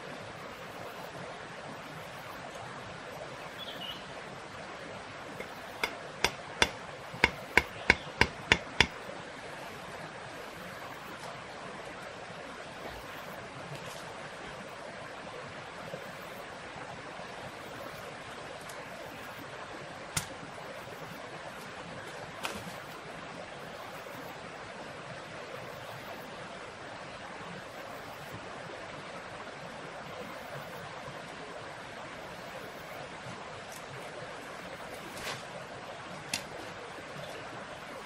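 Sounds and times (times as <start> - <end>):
knife knocking on wood: 5.4 - 9.0.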